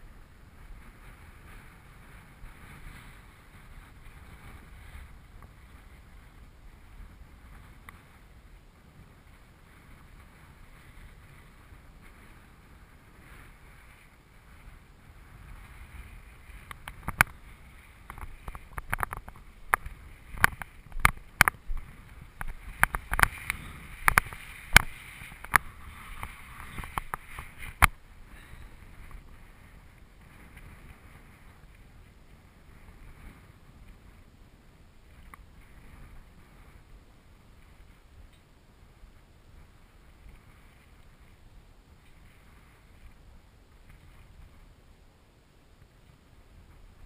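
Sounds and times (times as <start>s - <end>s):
wind blowing across microphone: 0.0s - 47.0s
sharp knocks and pops: 18.1s - 23.4s.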